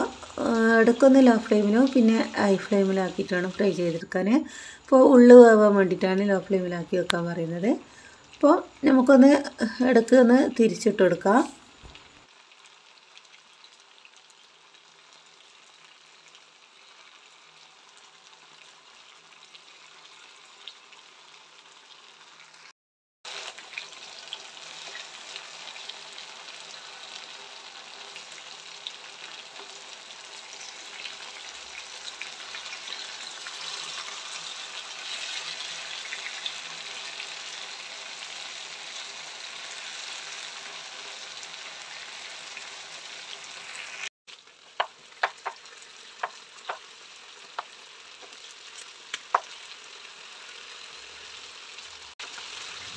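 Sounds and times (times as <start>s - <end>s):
chicken sizzling in pan: 0.0s - 6.3s, 7.8s - 22.7s, 23.3s - 52.9s
oil crackling pops: 47.5s - 49.6s.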